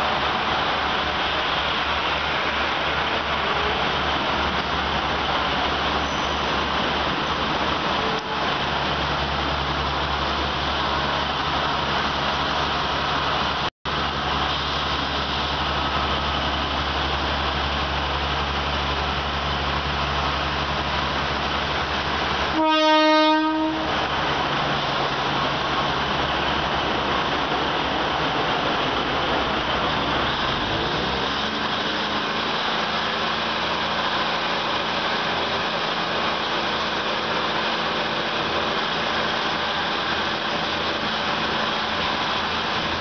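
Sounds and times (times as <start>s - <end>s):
train rumbling past: 0.0s - 43.0s
train horn: 22.5s - 24.0s.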